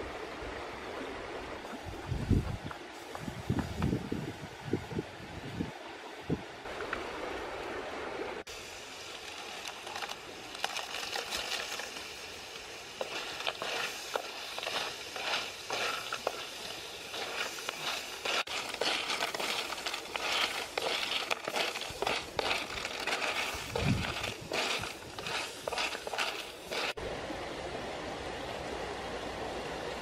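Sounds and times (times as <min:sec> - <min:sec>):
paste sizzling in wok: 0:08.6 - 0:27.0.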